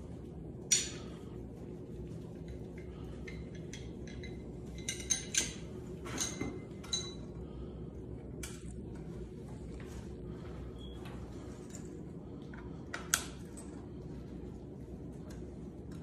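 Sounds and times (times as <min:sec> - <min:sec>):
steady low hum: 0:00.0 - 0:16.0
metallic clinks and taps: 0:02.4 - 0:07.2.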